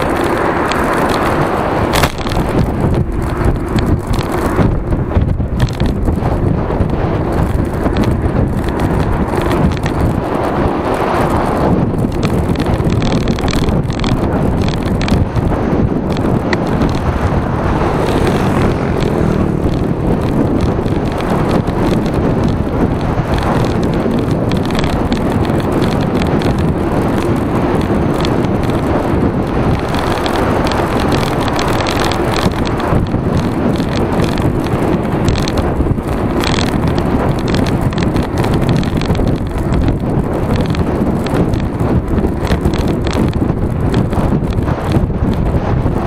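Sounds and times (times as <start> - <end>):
bicycle tyres humming on road: 0.0 - 46.0
wind on microphone: 0.0 - 46.0.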